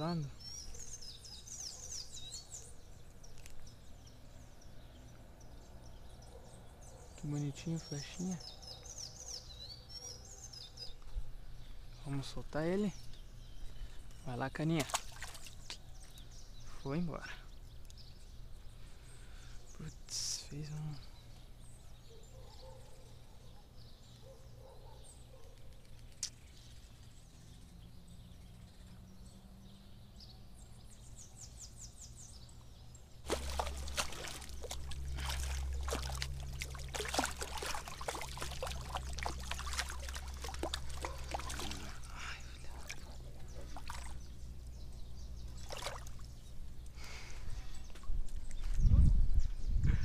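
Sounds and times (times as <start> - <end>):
fish thrashing and splashing: 14.8 - 15.8, 33.2 - 44.2, 45.6 - 46.4.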